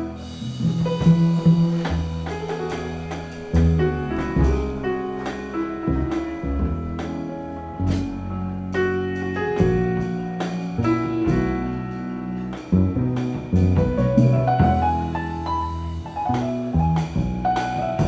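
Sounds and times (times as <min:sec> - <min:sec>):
double bass: 0:00.0 - 0:18.0
drum kit: 0:00.0 - 0:18.0
jazz piano: 0:00.0 - 0:18.0.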